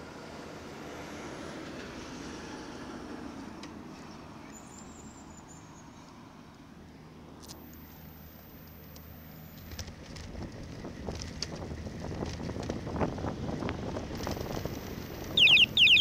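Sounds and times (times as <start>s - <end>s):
motor vehicle passing: 9.3s - 16.0s
steady low hum: 14.2s - 16.0s.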